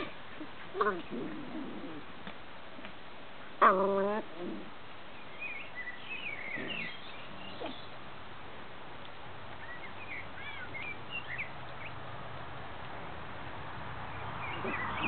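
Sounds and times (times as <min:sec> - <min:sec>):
puppies play-fighting: 0:00.0 - 0:03.0, 0:06.3 - 0:08.0, 0:14.3 - 0:15.0
faint bird chirping: 0:05.1 - 0:08.0, 0:09.5 - 0:12.0, 0:14.1 - 0:15.0.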